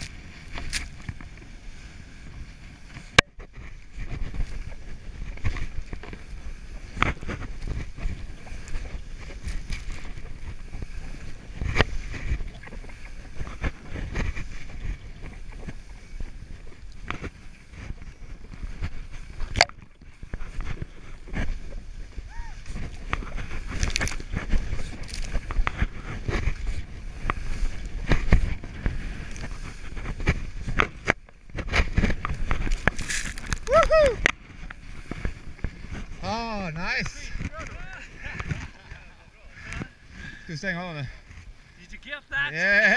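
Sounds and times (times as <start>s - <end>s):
skis swishing through snow: 0.0s - 19.4s, 20.1s - 42.9s
wind noise on microphone: 0.0s - 41.8s
skis running through powder snow: 20.3s - 34.1s.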